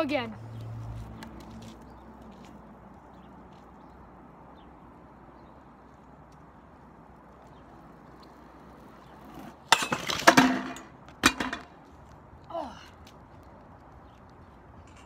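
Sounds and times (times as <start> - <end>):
metal rail clattering impacts: 9.7 - 11.7.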